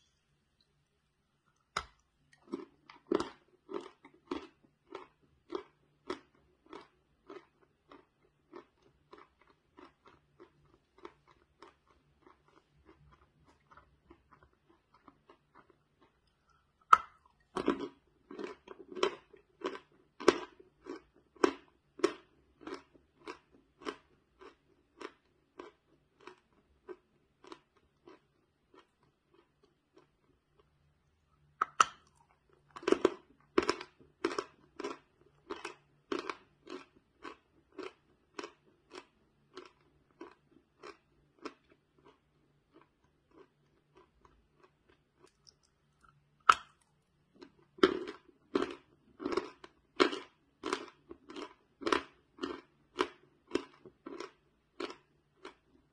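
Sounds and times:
crunchy chewing: 0:01.6 - 0:30.7.

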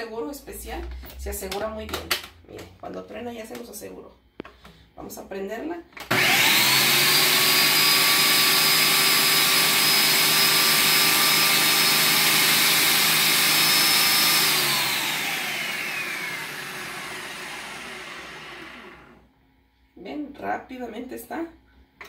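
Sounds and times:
blender running: 0:06.1 - 0:19.2.

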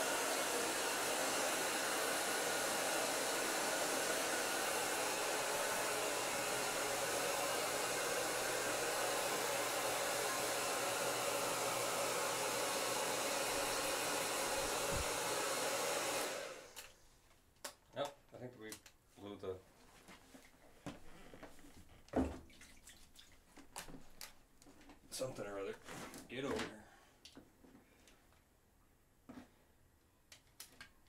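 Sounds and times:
blow dryer running: 0:00.0 - 0:16.9.

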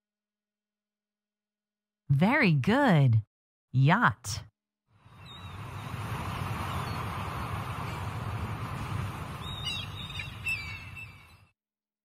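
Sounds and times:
boat engine rumble: 0:05.0 - 0:11.3
water rushing: 0:05.1 - 0:11.0
birds chirping: 0:05.1 - 0:11.5.

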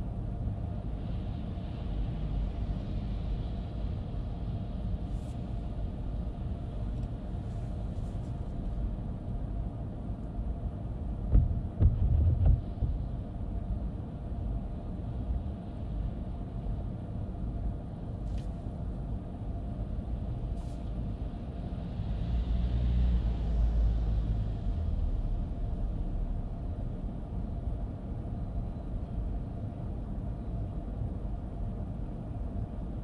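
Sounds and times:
vehicle passing with hiss: 0:21.8 - 0:26.2.

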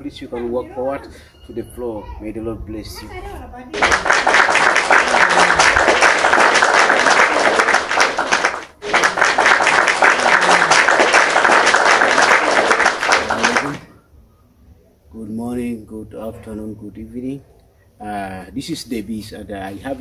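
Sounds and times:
audience applause: 0:03.8 - 0:13.9.

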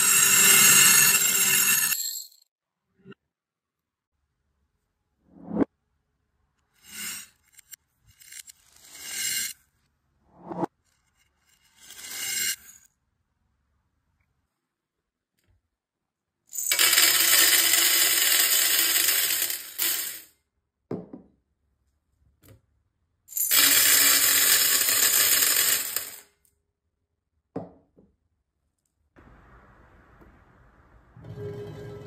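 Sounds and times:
reversed beads pouring onto metal: 0:16.6 - 0:20.2, 0:23.4 - 0:26.2.

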